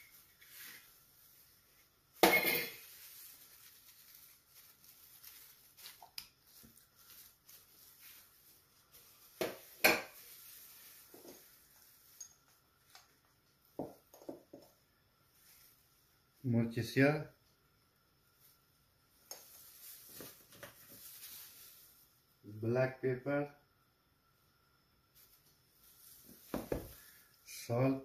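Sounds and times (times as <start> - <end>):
utensils clinking on glass dish: 2.2 - 2.9.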